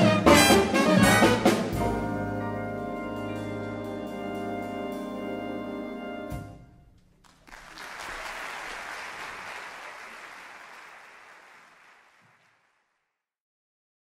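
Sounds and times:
big band jazz chord: 0.0s - 6.6s
audience applause: 7.2s - 13.0s.

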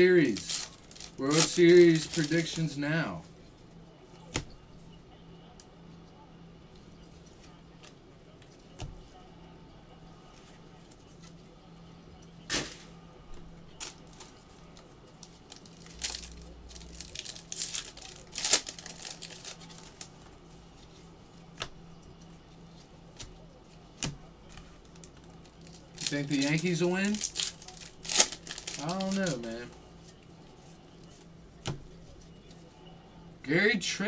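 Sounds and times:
foil wrapper ripping: 0.0s - 2.7s, 13.8s - 20.2s, 24.8s - 29.7s
foil wrapper crinkling: 0.0s - 2.8s, 13.7s - 20.2s, 24.5s - 30.2s.

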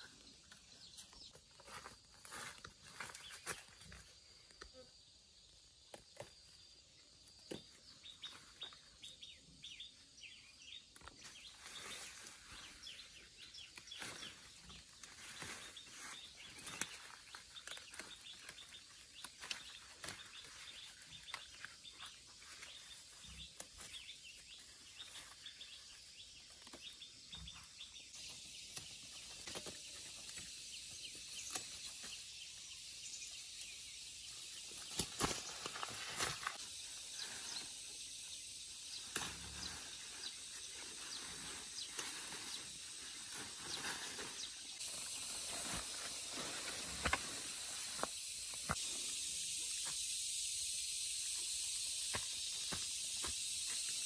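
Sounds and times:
steady hiss: 28.0s - 54.0s.

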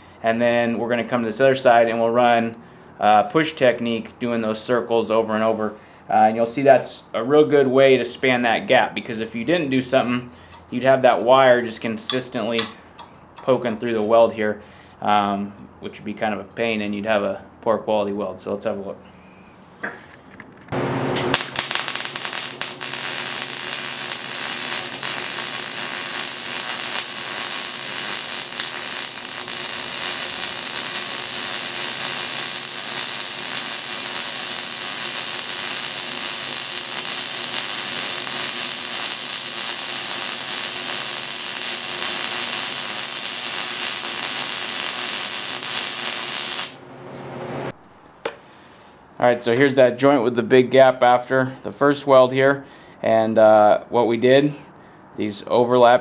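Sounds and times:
welding arc crackling and hissing: 20.8s - 46.8s.

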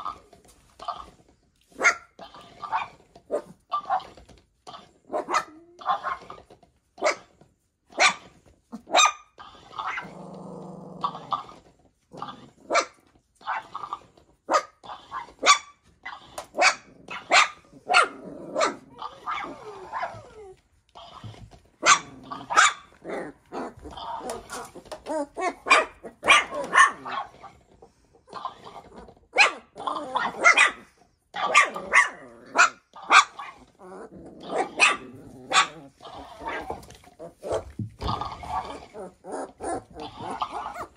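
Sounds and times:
puppies growling: 0.0s - 7.4s, 8.0s - 40.9s
puppies barking: 21.8s - 27.4s, 29.3s - 33.7s, 34.4s - 40.9s
plush toy making noises: 23.7s - 25.7s.

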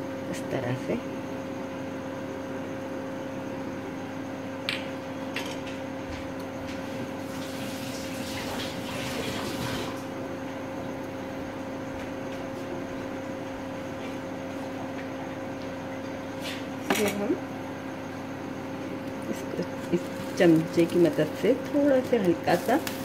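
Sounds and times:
steady low hum: 0.0s - 7.3s, 10.0s - 23.0s
batter sizzling in a frying pan: 7.2s - 9.9s, 22.0s - 23.0s.

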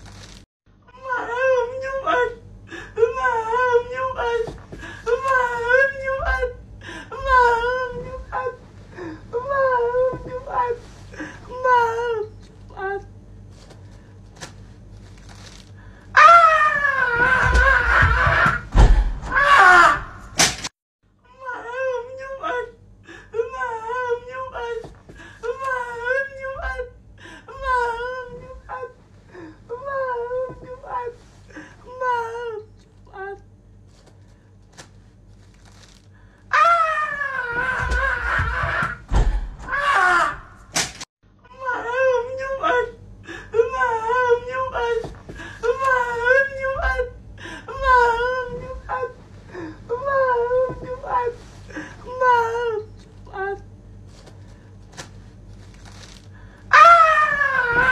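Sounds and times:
person crying out: 1.0s - 8.6s, 16.1s - 20.4s, 21.4s - 29.0s, 36.5s - 40.6s, 41.6s - 49.2s, 56.7s - 57.9s
person wailing: 1.0s - 8.6s, 16.1s - 20.3s, 36.5s - 39.0s, 39.6s - 40.6s, 41.6s - 49.2s, 56.7s - 57.9s
person screaming: 16.1s - 20.4s, 36.5s - 39.0s, 39.6s - 40.7s, 56.7s - 57.9s
heavy thuds: 17.3s - 20.6s.

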